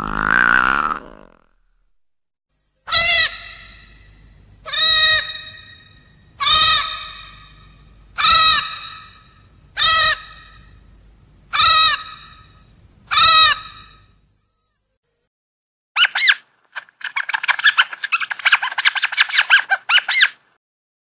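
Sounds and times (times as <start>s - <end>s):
cartoon creature caw-like call: 0.0s - 1.4s, 2.9s - 3.7s.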